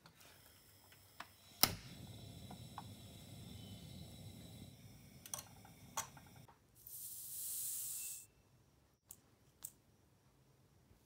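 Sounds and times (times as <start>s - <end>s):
loud hiss: 0.2s - 8.3s
liquid heating rumble: 1.4s - 6.5s.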